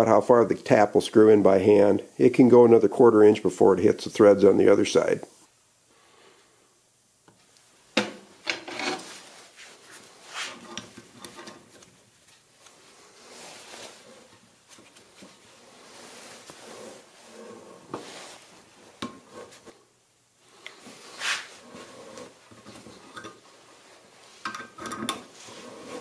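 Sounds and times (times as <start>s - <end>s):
tap scraping and rasping: 8.0s - 9.1s.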